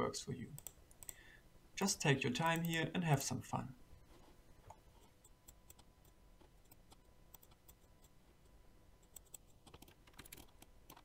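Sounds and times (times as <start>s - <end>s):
computer mouse clicks: 0.6s - 1.2s, 4.7s - 8.2s, 9.0s - 11.0s.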